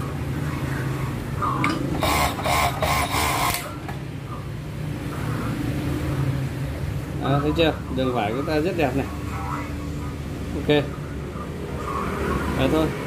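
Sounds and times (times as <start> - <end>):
overlock sewing machine motor humming: 2.0 - 3.7.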